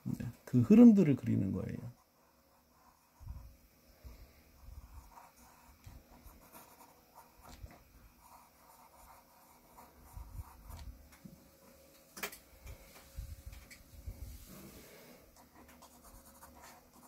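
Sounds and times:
pencil scratching on paper: 1.9s - 3.5s, 4.6s - 11.0s, 15.3s - 17.0s.

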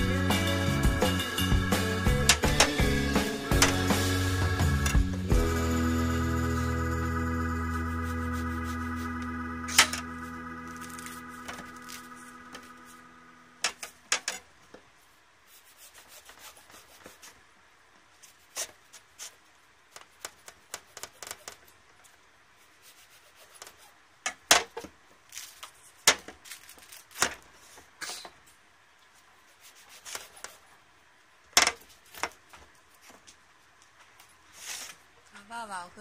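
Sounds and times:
held musical tone: 0.0s - 13.6s
fruit peel tearing and scraping: 25.3s - 27.4s.

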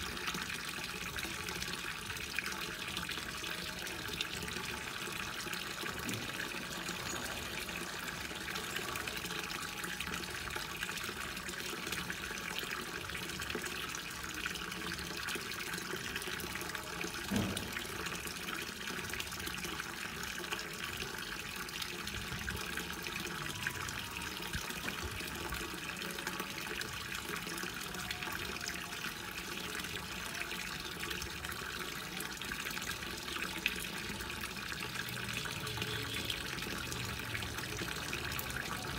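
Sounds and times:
water pouring into pond: 0.0s - 38.9s
short thump: 17.3s - 17.8s.

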